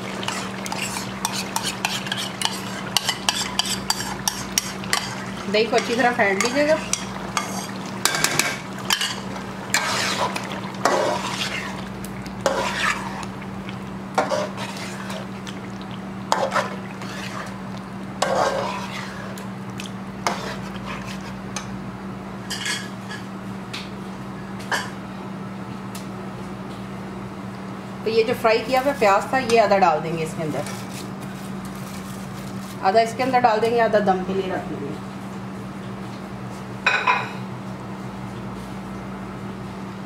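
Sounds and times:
steady low hum: 0.0s - 40.0s
spatula scraping a pot: 0.1s - 13.3s, 14.2s - 15.3s, 16.3s - 17.6s, 18.2s - 19.4s, 20.2s - 21.4s.

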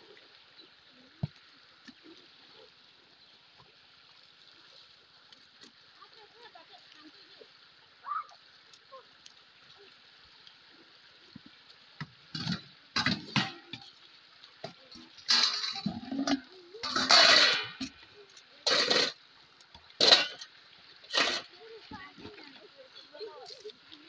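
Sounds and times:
water splashing and pouring: 0.0s - 24.0s.

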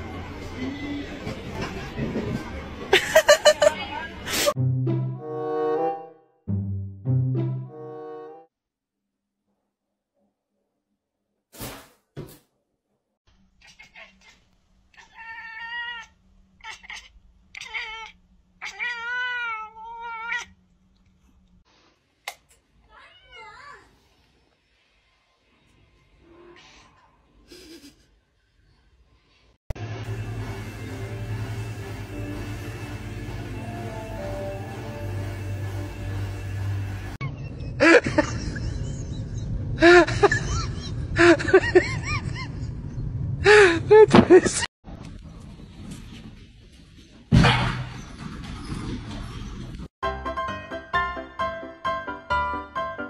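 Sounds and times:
cat meowing: 13.6s - 20.6s.

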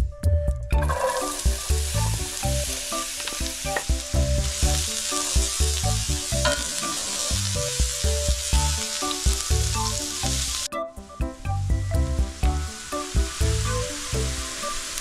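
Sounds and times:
vegetables sizzling in a pan: 1.1s - 10.7s, 12.5s - 15.0s.

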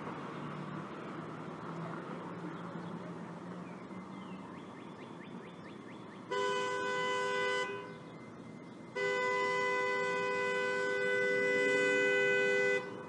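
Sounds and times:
two-note vehicle horn: 9.0s - 13.0s.

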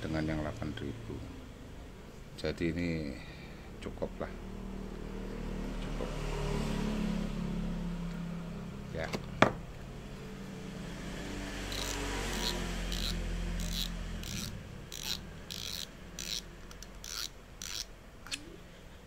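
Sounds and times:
fishing reel rasping clicks: 11.7s - 18.4s.

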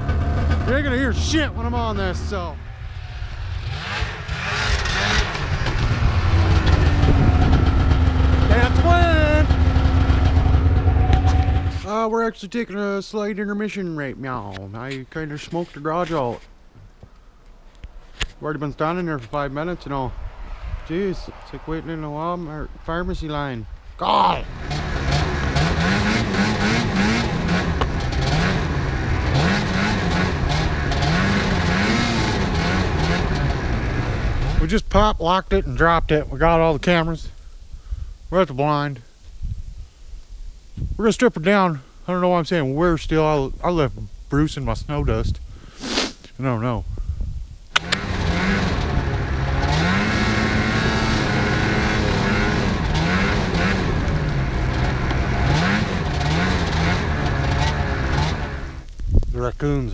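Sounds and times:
snowmobile engine revving: 0.0s - 12.1s, 24.0s - 34.8s, 47.8s - 58.9s.

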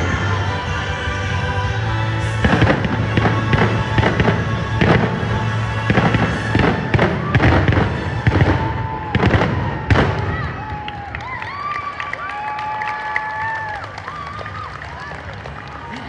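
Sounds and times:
music playing: 0.0s - 10.5s
fireworks bangs and crackles: 2.2s - 11.8s.

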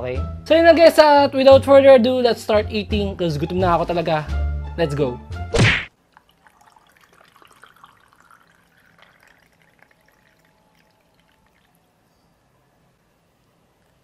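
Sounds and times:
drink pouring into glass: 6.0s - 12.3s.

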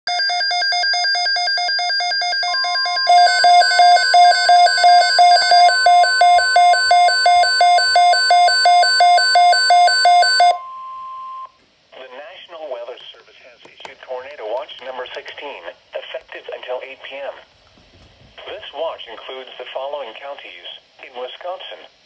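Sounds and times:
steady high alarm tone: 0.1s - 11.6s
fast pulsing electronic beep: 2.4s - 11.5s.

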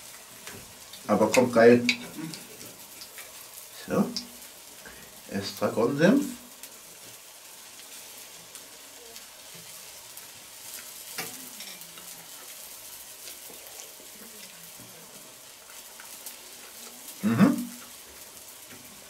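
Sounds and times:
grill sizzling and crackling: 0.0s - 19.0s
person humming: 17.2s - 17.7s.

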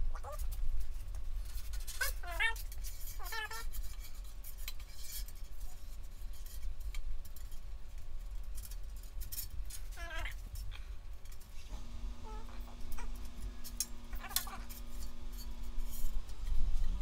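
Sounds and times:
short wavering squeals: 12.0s - 16.6s
hand tool scraping steel: 12.2s - 17.0s.

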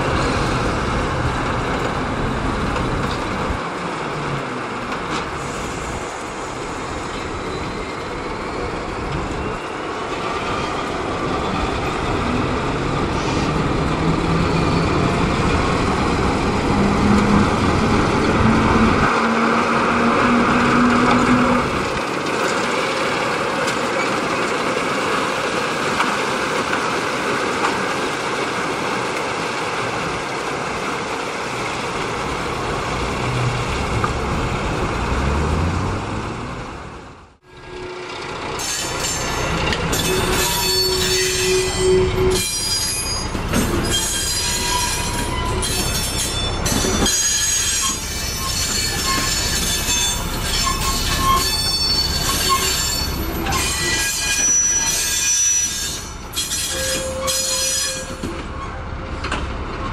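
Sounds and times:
train running noise: 0.0s - 59.9s
wheels squealing: 37.6s - 58.8s.

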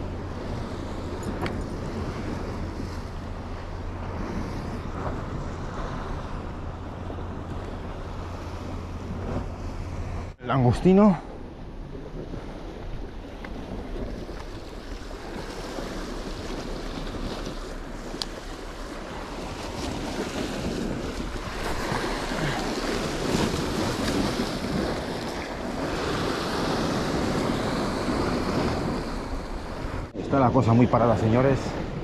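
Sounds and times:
wind buffeting microphone: 0.0s - 32.0s
surf breaking over rocks: 12.0s - 32.0s.

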